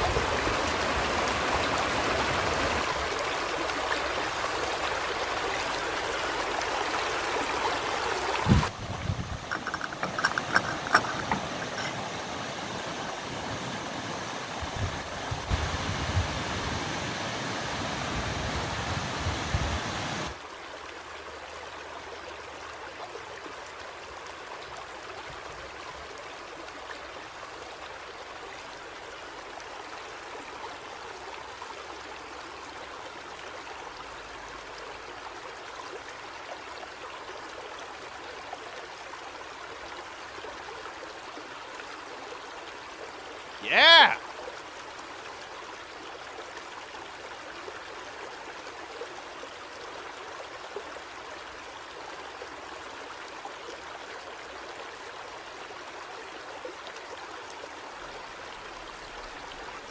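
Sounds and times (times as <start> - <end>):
water rushing: 0.0 - 21.3, 43.1 - 44.7.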